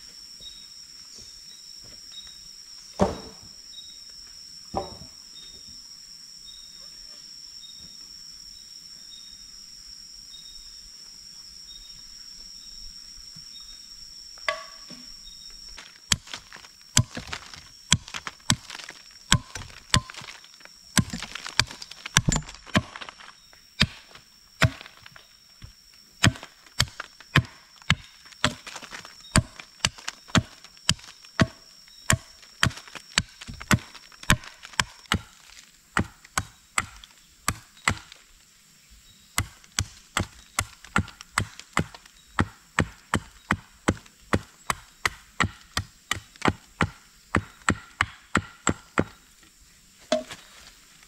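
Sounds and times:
hatchet chopping wood: 0:03.0 - 0:03.4, 0:04.8 - 0:05.0, 0:14.5 - 0:15.0, 0:16.1 - 0:20.4, 0:21.0 - 0:23.2, 0:23.8 - 0:25.1, 0:26.2 - 0:38.2, 0:39.4 - 0:49.2, 0:50.1 - 0:50.4.

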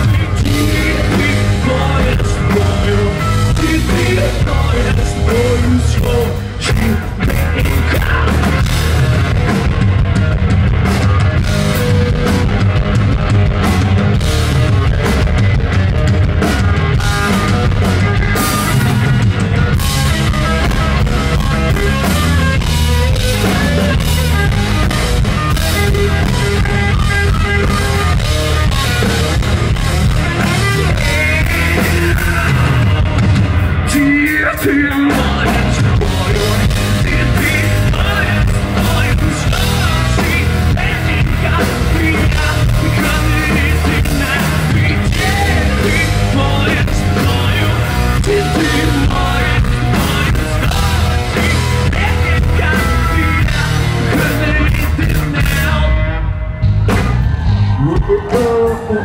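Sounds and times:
person singing: 0:00.0 - 0:08.9, 0:29.9 - 0:56.5, 0:57.4 - 0:59.0
bass guitar: 0:00.0 - 0:59.0
drums: 0:00.0 - 0:59.0
electric guitars: 0:00.0 - 0:59.0.

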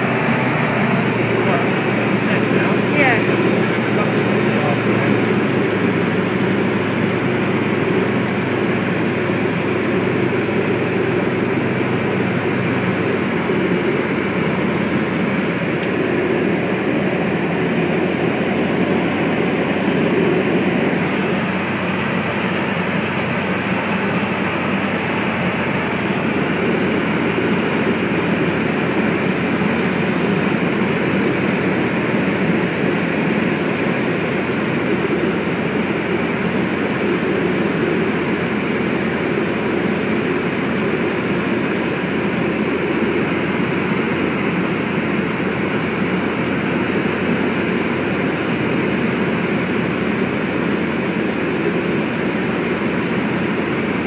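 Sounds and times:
propeller engine droning: 0:00.0 - 0:54.0.

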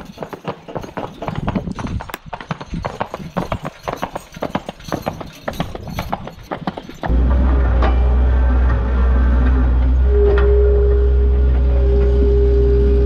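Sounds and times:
horse hooves clip-clopping on asphalt: 0:00.0 - 0:07.1.

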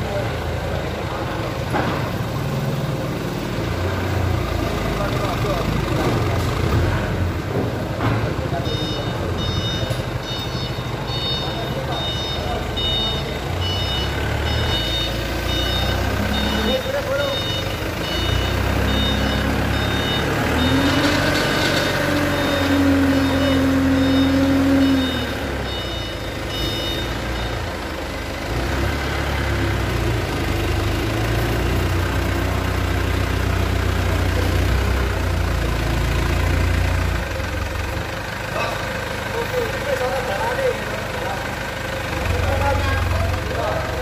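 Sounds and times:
forklift engine running: 0:00.0 - 0:44.0
reversing alarm beeping: 0:08.5 - 0:27.9.

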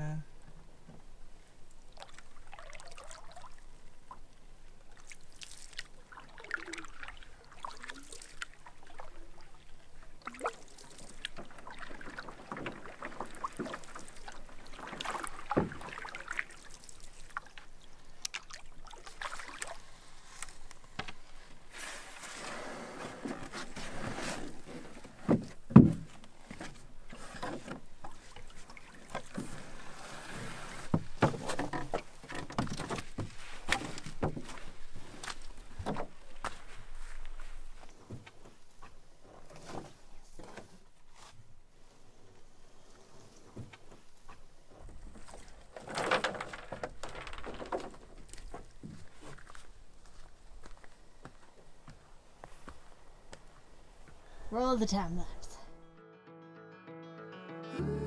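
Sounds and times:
paddles pulling through water: 0:01.5 - 0:54.2
water drips and splashes: 0:01.7 - 0:20.8.

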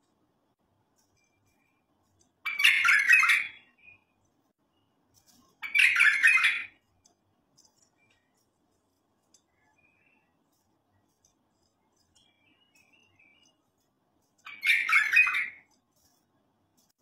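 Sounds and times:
bulbul singing: 0:01.0 - 0:06.8, 0:11.0 - 0:15.7.

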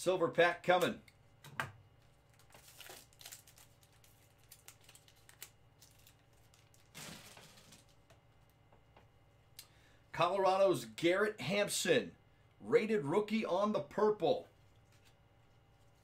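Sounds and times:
foil wrapper crinkling: 0:02.0 - 0:08.1.

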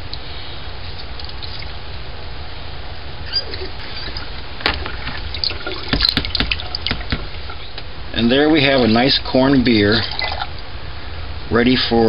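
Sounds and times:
liquid dribbling into colander: 0:01.2 - 0:01.8, 0:03.3 - 0:10.6
sharp plastic knock: 0:05.9 - 0:07.3.

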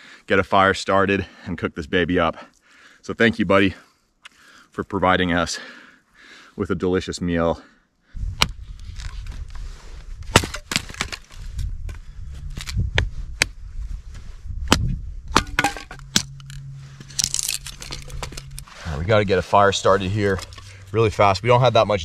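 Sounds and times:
hatchet splitting wood: 0:10.3 - 0:11.3, 0:14.7 - 0:16.5
low steady rumble: 0:11.3 - 0:22.0.

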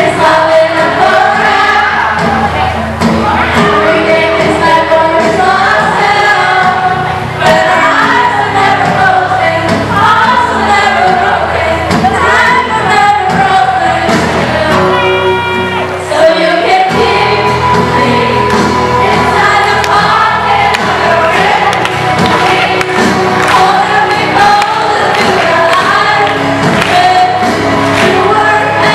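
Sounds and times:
group of voices singing: 0:00.0 - 0:28.9.

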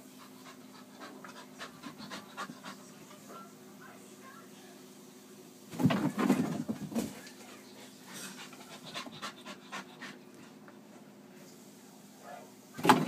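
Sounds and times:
dog panting: 0:00.0 - 0:03.4, 0:07.8 - 0:10.6.

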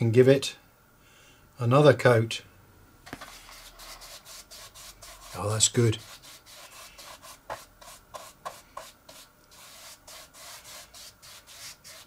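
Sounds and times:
paintbrush brushing: 0:03.2 - 0:12.0.

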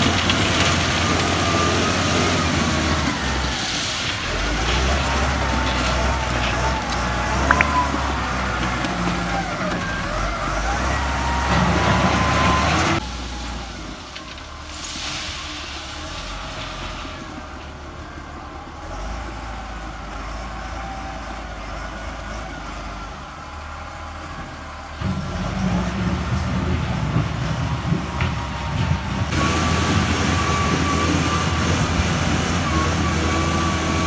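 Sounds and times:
loud diesel engine with whine: 0:00.0 - 0:34.0.

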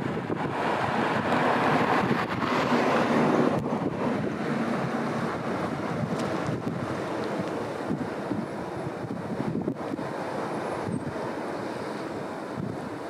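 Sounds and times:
sea water rushing along hull: 0:00.0 - 0:13.0
wind buffeting microphone: 0:00.0 - 0:13.0.

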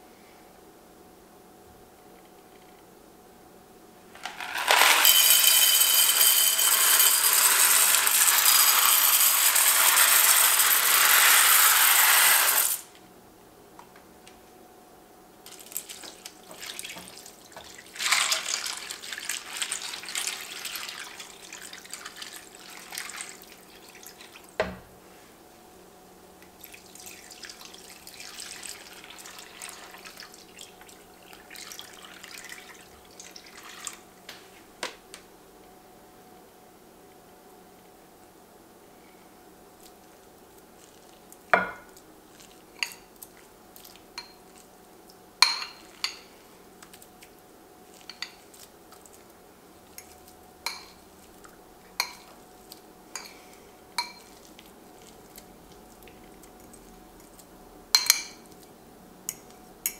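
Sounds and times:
dry pasta rattling into dish: 0:04.2 - 0:12.9, 0:15.5 - 0:23.9
liquid splashing over pasta: 0:15.5 - 0:24.6, 0:26.6 - 0:34.0.

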